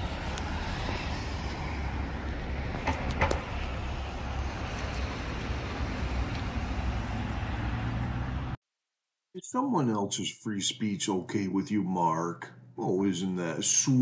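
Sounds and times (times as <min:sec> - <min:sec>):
road traffic rumble: 0:00.0 - 0:08.6.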